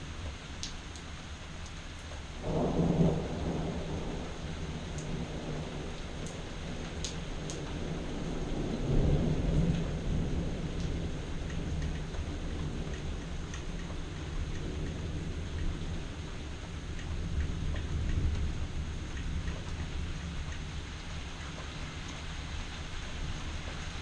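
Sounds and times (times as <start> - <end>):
raindrop ticks: 0.0 - 24.0
steady rain: 0.0 - 24.0
thunder rumbling: 2.4 - 24.0.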